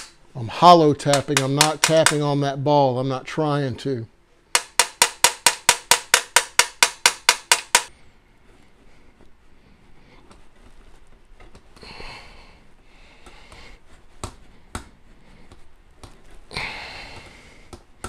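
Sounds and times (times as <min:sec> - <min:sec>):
person breathing: 0:11.8 - 0:15.7, 0:16.5 - 0:17.8.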